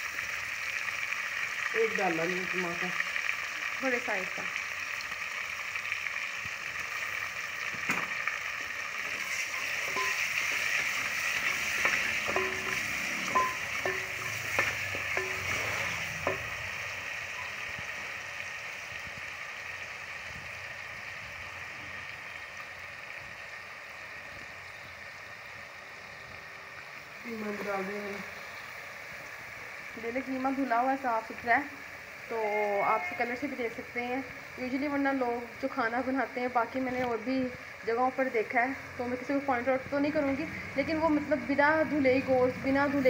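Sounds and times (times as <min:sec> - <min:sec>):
onions sizzling in hot oil: 0:00.0 - 0:43.0
spoon scraping against pot: 0:09.0 - 0:16.6.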